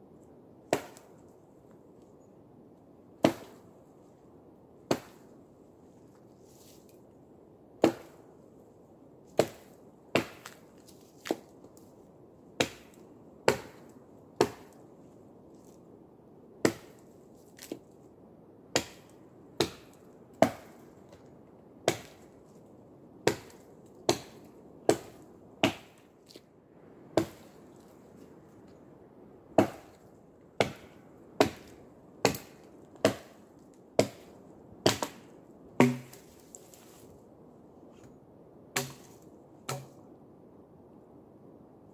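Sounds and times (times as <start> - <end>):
axe chopping wood: 0.7 - 1.1, 3.2 - 3.6, 4.9 - 5.2, 7.8 - 8.2, 9.3 - 10.6, 11.2 - 11.5, 12.6 - 14.8, 16.6 - 17.0, 18.7 - 20.8, 21.8 - 22.3, 23.2 - 26.0, 27.2 - 27.6, 29.6 - 30.0, 30.6 - 33.4, 34.0 - 36.8, 38.8 - 40.0.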